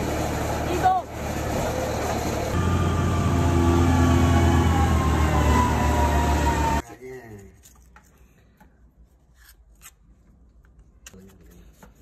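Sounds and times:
diesel engine running: 0.0s - 6.8s.

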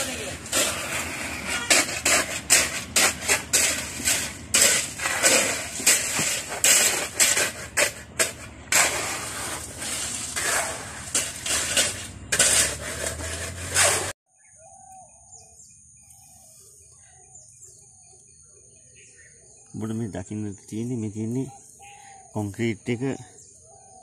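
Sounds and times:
rakes scraping wet concrete: 0.0s - 14.2s
birds calling: 14.3s - 24.0s.

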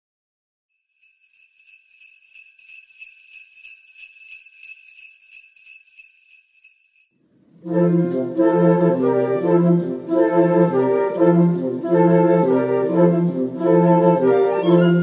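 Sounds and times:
sleigh bells jingling: 0.8s - 15.0s.

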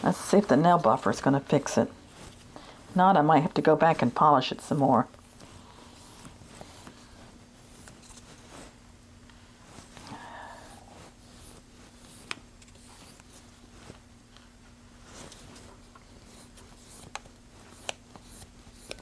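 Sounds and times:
nail buffer scratching a blade: 16.2s - 19.0s.

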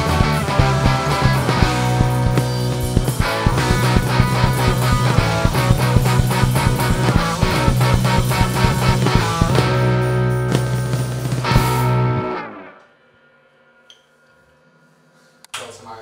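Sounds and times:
drum kit beat: 0.0s - 12.3s
electric bass: 0.0s - 12.7s
electric guitar: 0.0s - 12.8s.

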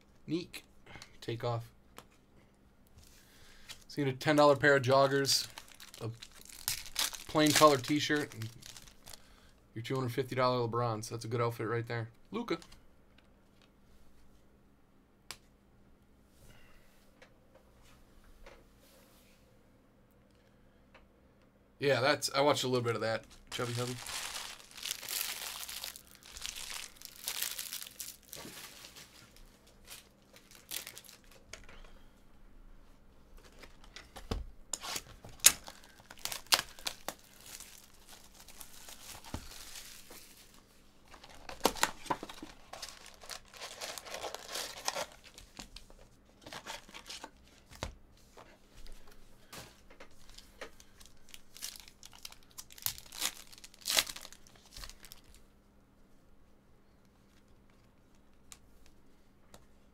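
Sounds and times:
wrappers tearing and crinkling: 4.4s - 9.3s, 23.2s - 31.5s, 34.8s - 45.8s, 46.4s - 47.4s, 50.2s - 55.4s.

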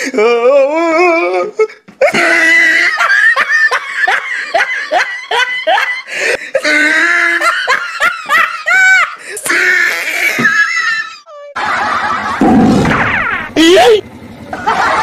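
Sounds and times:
person laughing heartily: 1.6s - 12.6s
high squeal of laughter: 6.6s - 13.9s.

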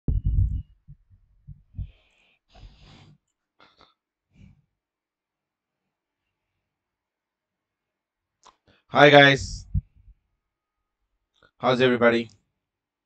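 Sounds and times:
thumps and rustles on microphone: 0.1s - 2.0s, 9.4s - 10.1s.

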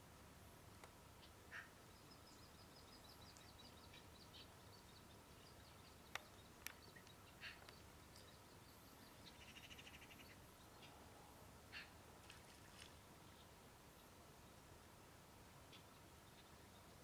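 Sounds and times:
faint distant chirps: 1.1s - 14.6s.

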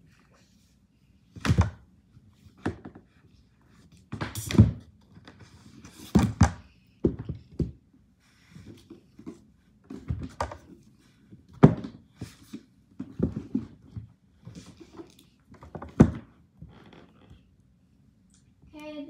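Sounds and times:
household objects thunking and clattering: 9.1s - 10.8s, 11.5s - 16.4s.

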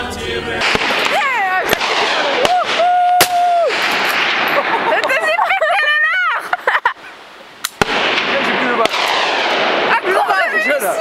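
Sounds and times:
gunshots: 0.6s - 5.1s, 7.6s - 10.9s.

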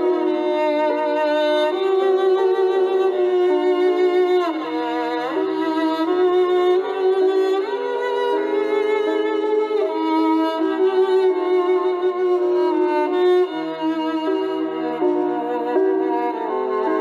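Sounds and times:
violin melody: 0.0s - 17.0s.

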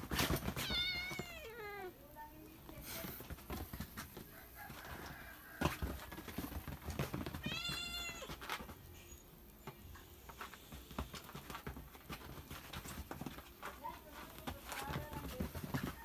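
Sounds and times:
cats scuffling and thumping: 0.0s - 16.0s
cat meowing: 0.6s - 1.9s.

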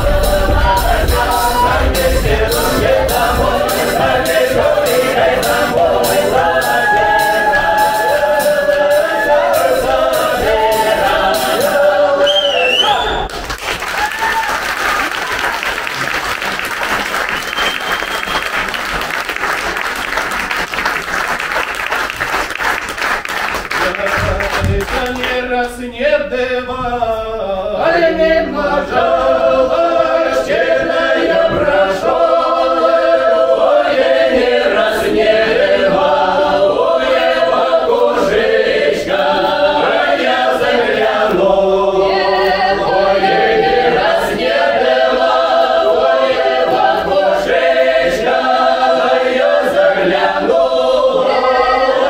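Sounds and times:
mixed choir singing unaccompanied: 0.0s - 13.0s, 24.6s - 52.0s.

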